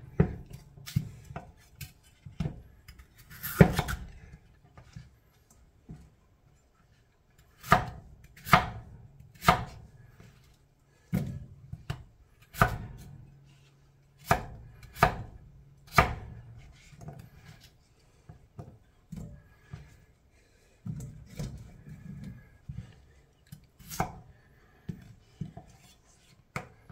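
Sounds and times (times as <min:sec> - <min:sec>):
knife chopping potatoes on board: 0:00.1 - 0:04.1, 0:07.6 - 0:09.8, 0:11.1 - 0:13.2, 0:14.2 - 0:17.6.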